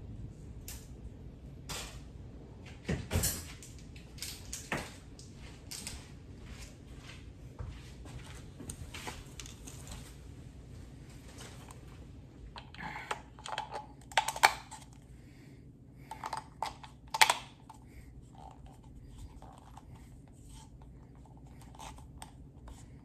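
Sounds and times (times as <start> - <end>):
plastic item clicking and clattering: 12.6 - 15.0, 16.1 - 17.7.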